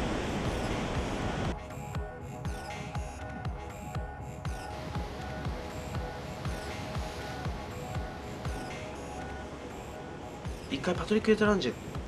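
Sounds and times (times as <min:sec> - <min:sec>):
kick drum beat: 0:00.0 - 0:08.7.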